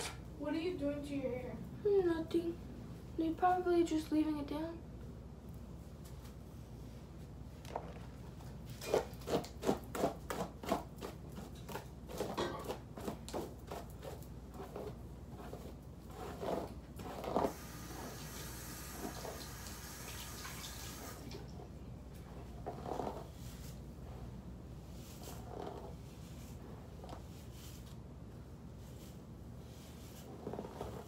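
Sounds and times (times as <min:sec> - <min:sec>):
hairbrush strokes through hair: 0:24.8 - 0:28.0, 0:28.8 - 0:31.0.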